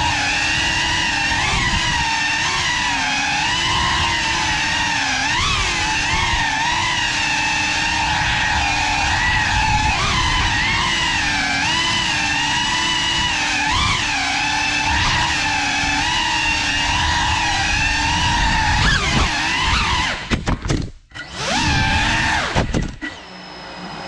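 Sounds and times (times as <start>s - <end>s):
drone motors whining: 0.0s - 24.0s.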